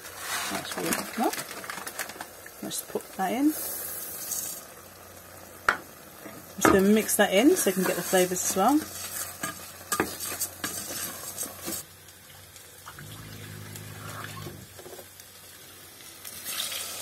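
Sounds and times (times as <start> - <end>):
wooden spoon scraping saucepan: 7.7 - 11.8.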